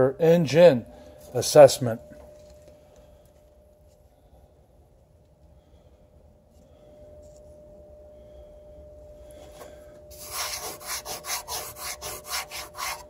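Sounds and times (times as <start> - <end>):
finger rubbing metal plate: 10.2 - 13.0.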